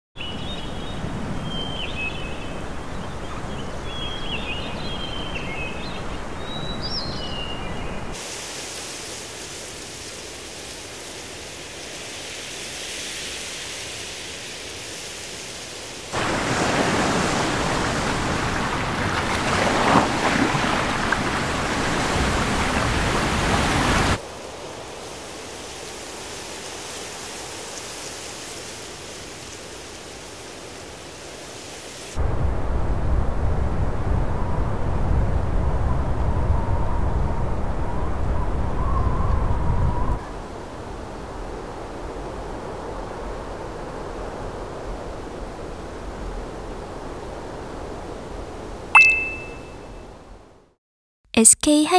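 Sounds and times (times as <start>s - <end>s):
soft hiss: 8.2s - 16.1s
short high chirps: 49.0s - 49.9s.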